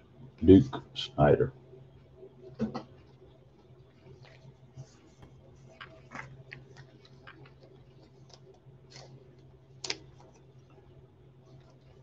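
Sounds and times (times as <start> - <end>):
trading cards rustling: 5.6 - 10.6.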